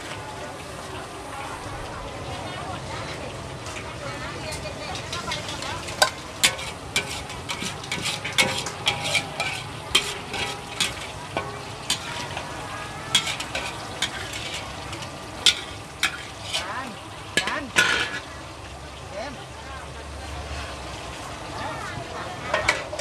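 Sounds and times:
frying sizzle: 0:00.0 - 0:23.0
metal spatula scraping a wok: 0:04.5 - 0:18.4, 0:22.5 - 0:23.0.

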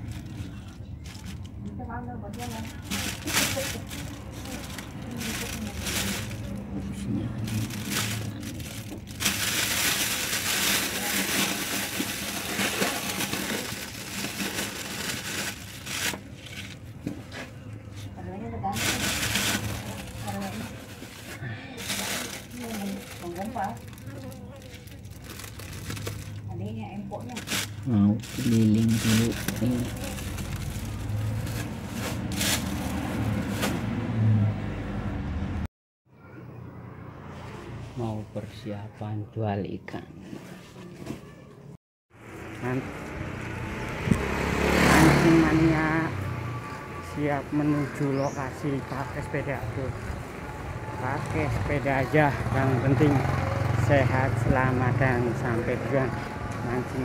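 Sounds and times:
road traffic rumble: 0:00.0 - 0:39.2, 0:41.6 - 0:57.0
plastic bag crinkling: 0:02.4 - 0:06.7, 0:07.3 - 0:16.8, 0:18.7 - 0:33.7.

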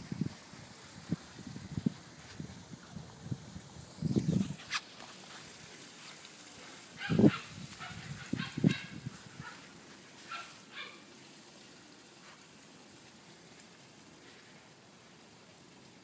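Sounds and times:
faint steady hiss: 0:00.0 - 0:16.0
puppy yapping: 0:07.0 - 0:09.6, 0:10.3 - 0:11.0.

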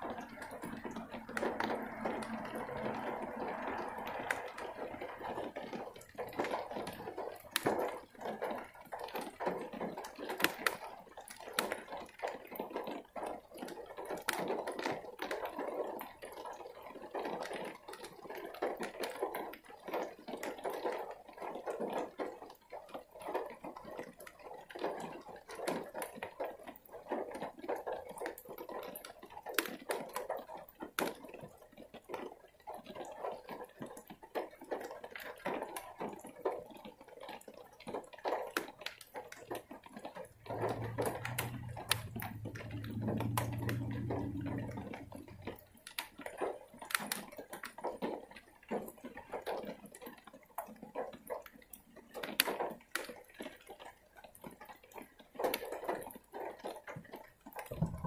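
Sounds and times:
heavy rain dripping: 0:00.0 - 0:58.0
low steady hum: 0:57.7 - 0:58.0.

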